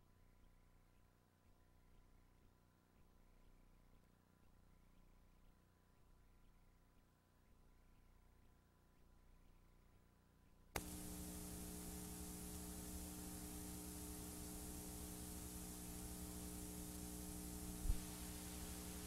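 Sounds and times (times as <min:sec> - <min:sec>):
electrical hum and hiss: 0:10.8 - 0:19.0.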